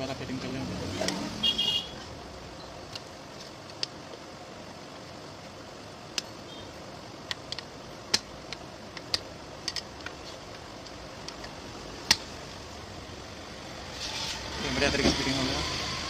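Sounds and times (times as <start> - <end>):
steady low hiss: 0.0 - 16.0
plastic clicks and snaps: 7.2 - 12.3.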